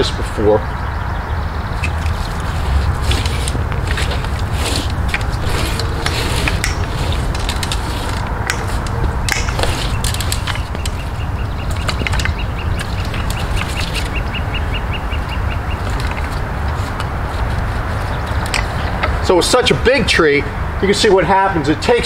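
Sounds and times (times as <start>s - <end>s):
steady low rumble: 0.0s - 21.8s
pole knocking against tree bark: 3.0s - 14.2s.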